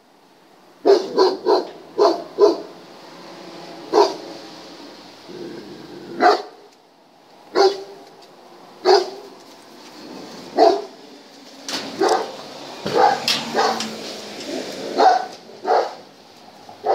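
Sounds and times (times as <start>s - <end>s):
dog barking: 0.8s - 2.8s, 3.9s - 4.3s, 6.2s - 6.7s, 7.5s - 8.0s, 8.8s - 9.3s, 10.5s - 11.0s, 11.9s - 13.9s, 14.9s - 16.0s.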